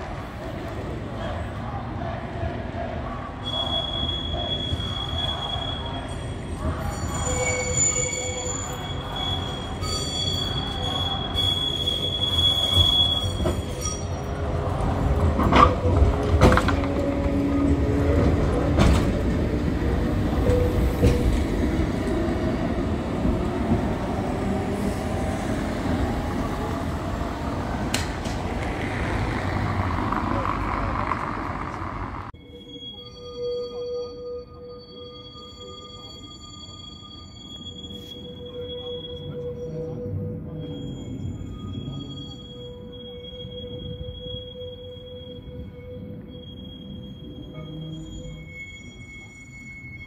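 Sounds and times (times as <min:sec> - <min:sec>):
tram rumbling past: 0:00.0 - 0:33.6
tram wheels squealing on rails: 0:00.0 - 0:50.0.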